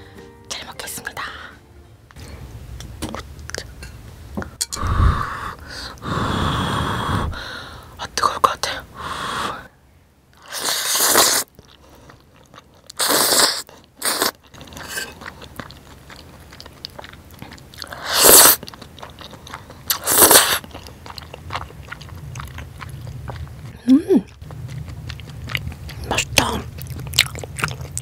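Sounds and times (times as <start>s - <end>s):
person slurping noodles: 4.8s - 7.4s, 10.4s - 11.5s, 13.0s - 15.2s, 17.8s - 18.6s, 19.9s - 20.7s
wet chewing: 10.4s - 28.0s.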